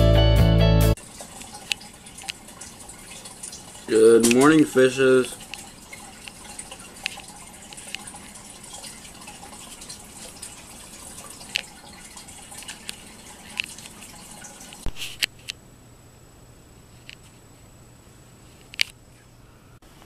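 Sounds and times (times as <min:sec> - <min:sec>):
filter water trickling: 0:01.0 - 0:14.9
water drips and splashes: 0:01.0 - 0:14.9.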